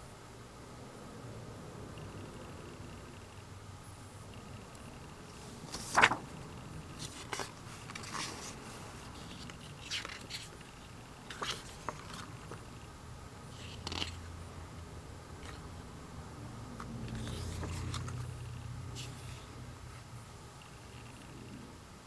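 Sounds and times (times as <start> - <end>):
paper pages turning: 5.6 - 6.3, 7.0 - 12.6, 13.5 - 14.2, 17.1 - 18.3.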